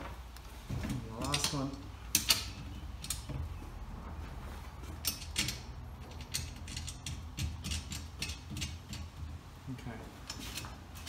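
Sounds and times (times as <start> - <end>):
metal clicks and scrapes of bolt: 1.2 - 3.4, 4.9 - 9.3.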